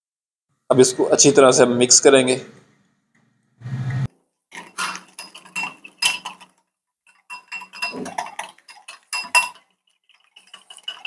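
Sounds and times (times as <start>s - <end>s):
whisk clinking against glass bowl: 4.6s - 11.0s.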